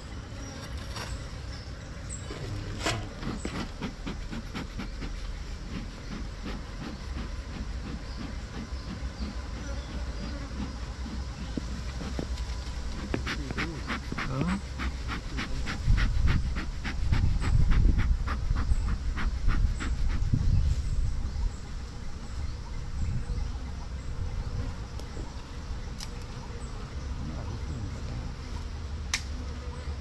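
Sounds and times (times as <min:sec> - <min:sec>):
bellows puffing: 0:02.3 - 0:20.2.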